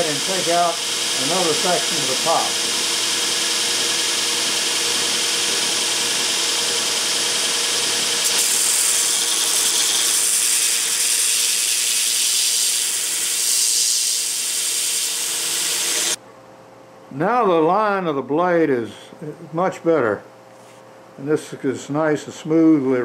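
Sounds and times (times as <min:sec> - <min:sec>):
belt grinder grinding steel: 0:00.0 - 0:16.2.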